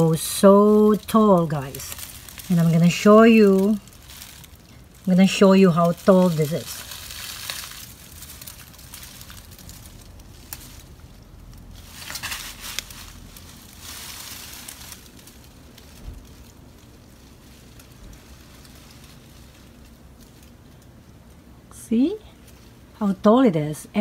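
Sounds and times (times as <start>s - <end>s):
faint outdoor background noise: 0.0s - 24.0s
short rustles: 11.7s - 20.6s.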